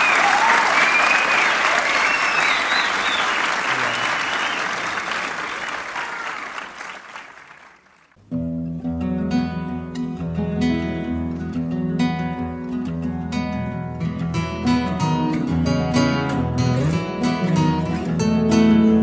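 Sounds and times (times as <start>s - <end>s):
audience applause: 0.0s - 8.2s
acoustic guitar playing: 8.2s - 19.0s.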